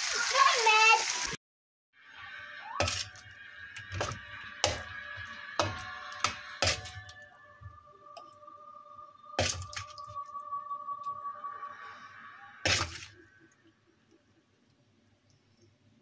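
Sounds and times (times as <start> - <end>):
metal spoon scraping metal pan: 3.8 - 7.2, 12.7 - 13.1.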